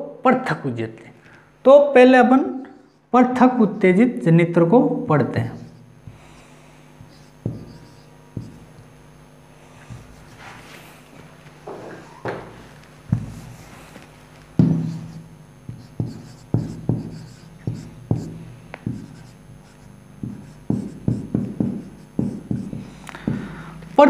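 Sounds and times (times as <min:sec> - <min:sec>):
marker writing on whiteboard: 0:05.6 - 0:08.8, 0:09.8 - 0:10.6, 0:13.2 - 0:13.7, 0:14.6 - 0:23.4.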